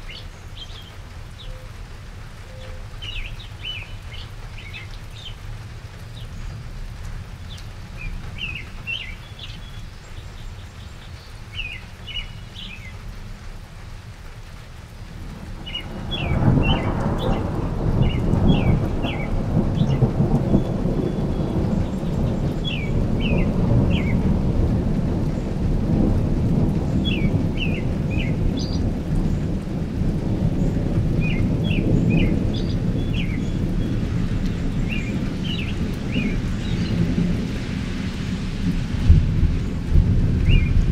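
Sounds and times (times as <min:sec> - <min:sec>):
rain: 0:00.0 - 0:40.9
bird chirping: 0:07.5 - 0:13.0, 0:18.0 - 0:24.2, 0:31.2 - 0:34.0, 0:40.4 - 0:40.8
rolling thunder: 0:15.1 - 0:40.9.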